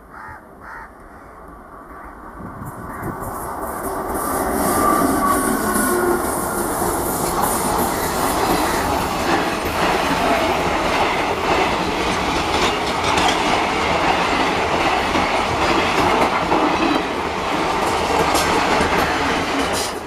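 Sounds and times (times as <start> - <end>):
train wheels clattering on rails: 2.6 - 20.0.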